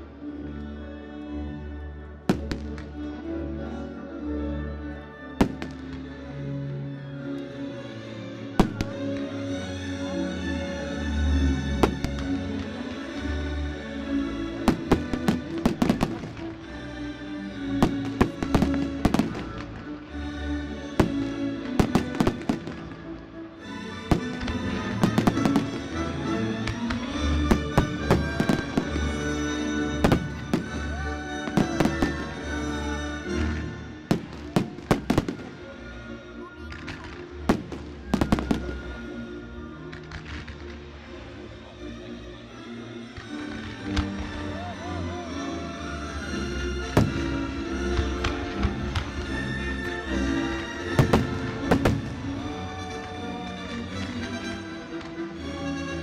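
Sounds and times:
music playing: 0:00.0 - 0:56.0
fireworks cracking: 0:14.7 - 0:16.6, 0:17.8 - 0:19.9, 0:21.0 - 0:23.2, 0:24.0 - 0:35.7, 0:36.7 - 0:39.1, 0:50.4 - 0:53.2.

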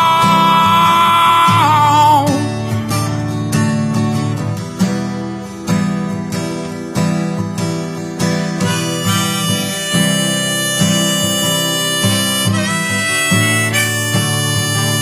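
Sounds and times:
harmonica long notes: 0:00.0 - 0:02.5, 0:08.6 - 0:15.0
acoustic guitar strumming: 0:00.0 - 0:15.0.

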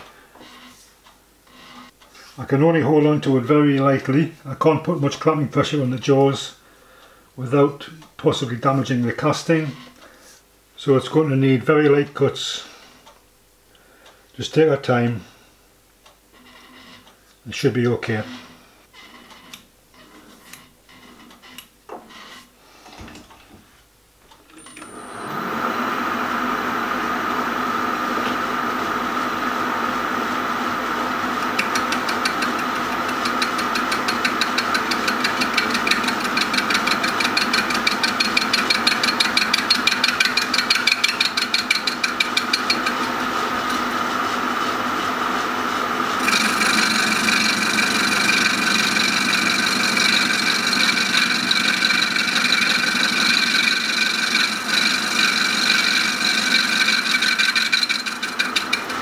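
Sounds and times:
metal lathe running: 0:24.8 - 0:59.0
fast even ticking of cutting tool: 0:31.4 - 0:43.1, 0:46.2 - 0:59.0.

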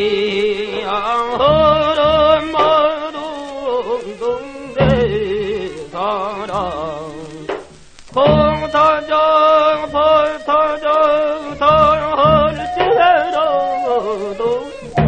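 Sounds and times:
person singing with heavy vibrato: 0:00.0 - 0:15.0
low beats: 0:01.3 - 0:15.0.

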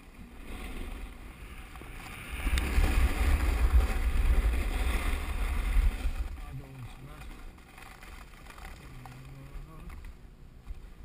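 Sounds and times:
skis sliding over packed snow: 0:00.0 - 0:10.0
wind buffeting microphone: 0:01.1 - 0:07.6.

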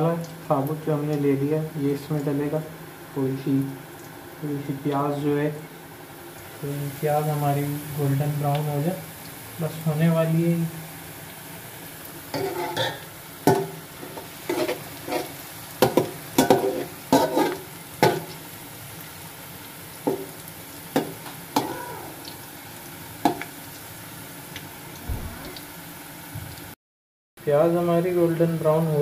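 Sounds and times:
onions sizzling in oil: 0:00.0 - 0:26.8
metal spatula scraping pot: 0:12.3 - 0:13.0, 0:14.0 - 0:15.4, 0:16.4 - 0:17.6.

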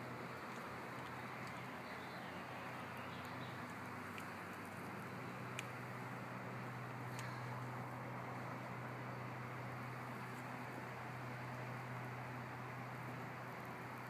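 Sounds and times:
constant low hum: 0:00.0 - 0:14.0.

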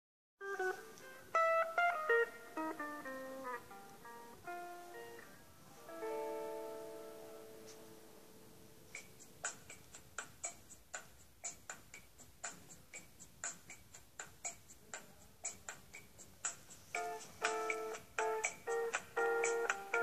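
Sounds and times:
metronome ticking: 0:00.4 - 0:05.3, 0:08.9 - 0:20.0
guitar chord ringing: 0:00.4 - 0:08.9.

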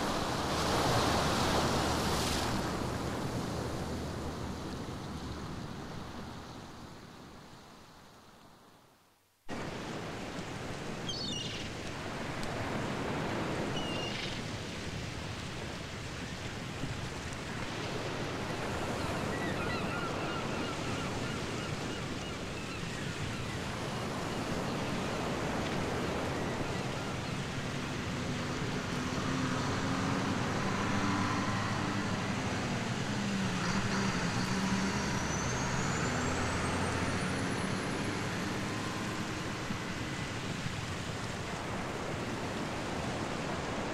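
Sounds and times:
seaside wash of noise: 0:00.0 - 0:08.4, 0:09.5 - 0:43.9
road traffic: 0:23.5 - 0:43.9
vehicle engine passing: 0:27.9 - 0:40.4.

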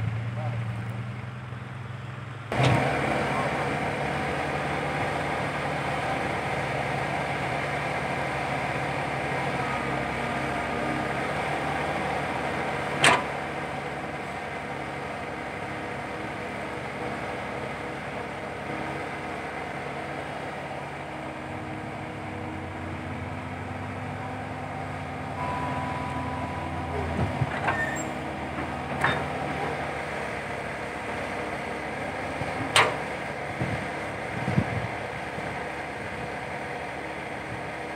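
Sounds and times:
excavator diesel engine running: 0:00.0 - 0:37.9.

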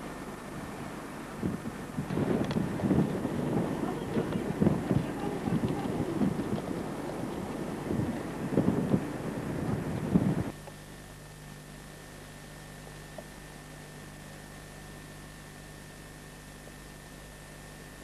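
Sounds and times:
steady hiss: 0:00.0 - 0:15.2
faint low hum: 0:00.0 - 0:18.0
wind buffeting microphone: 0:01.4 - 0:10.5.

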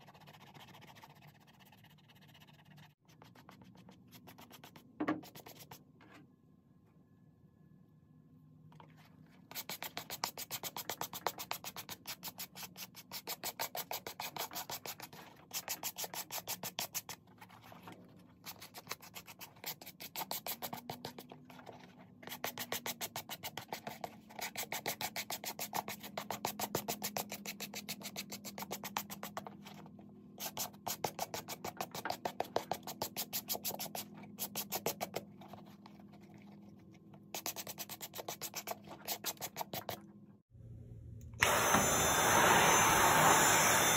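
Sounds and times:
brush scrubbing suede: 0:30.4 - 0:40.0.

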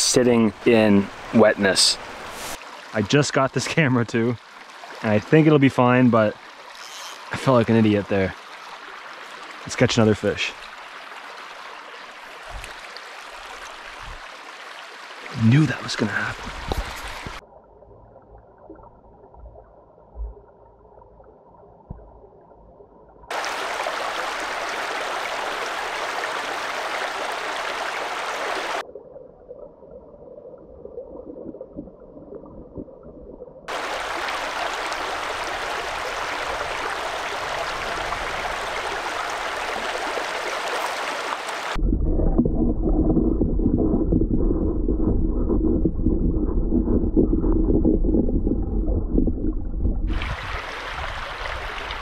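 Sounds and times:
muffled underwater stream gurgling: 0:00.0 - 0:06.7, 0:07.3 - 0:52.0
stream rushing: 0:23.3 - 0:28.8, 0:33.7 - 0:41.8, 0:50.1 - 0:52.0.

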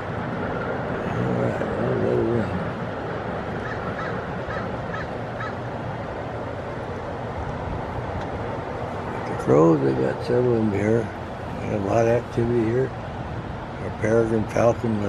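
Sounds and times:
steady background noise: 0:00.0 - 0:15.0
crows cawing: 0:03.6 - 0:05.7.

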